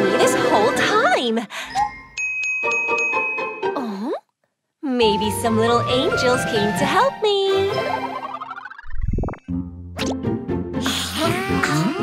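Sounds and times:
rising cartoon bloops: 7.7 - 10.2.

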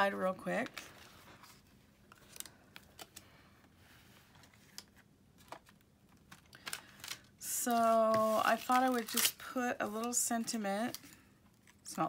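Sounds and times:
card clicks and rustles: 4.4 - 7.3.

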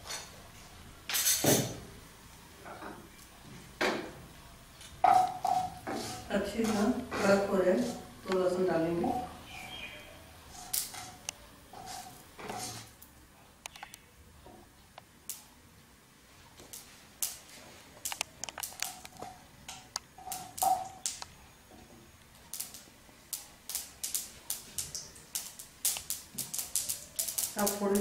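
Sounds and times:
mustard seeds popping in hot oil: 4.8 - 9.3, 10.5 - 14.1, 16.6 - 21.4, 22.1 - 28.0.

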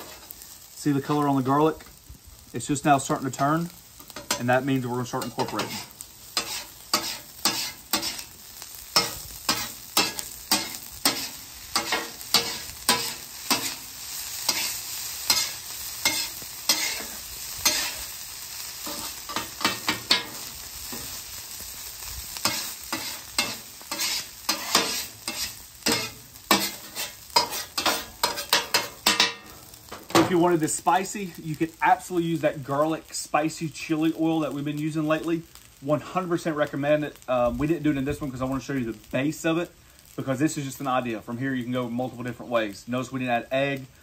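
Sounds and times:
metal spatulas scraping griddle: 0.0 - 0.4, 4.0 - 18.0, 18.8 - 21.2, 22.4 - 29.6
rice sizzling on griddle: 0.0 - 44.0.

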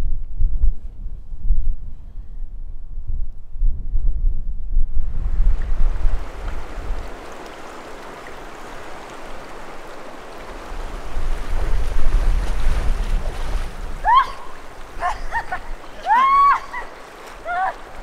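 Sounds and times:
wind buffeting microphone: 0.0 - 18.0
river rushing over pebbles: 5.6 - 18.0.

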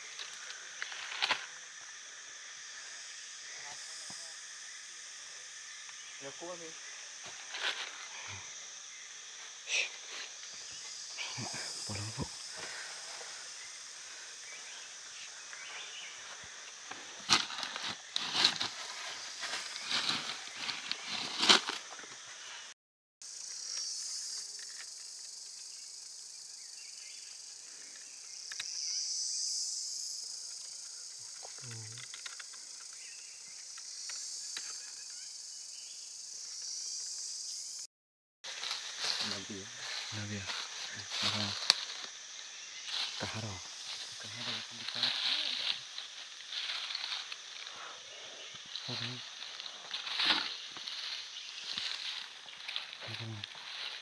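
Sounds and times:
leaves crackling: 0.0 - 1.8, 7.2 - 8.4, 9.4 - 21.9, 38.5 - 54.0
high insect buzz: 0.0 - 54.0
footsteps in dry leaves: 17.0 - 22.0, 38.4 - 42.1, 42.8 - 47.7, 48.7 - 54.0.

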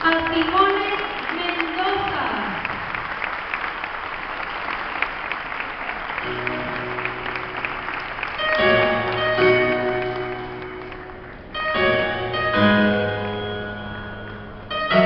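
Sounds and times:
audience applauding: 0.0 - 11.6
instrumental music with chords: 8.4 - 15.0.

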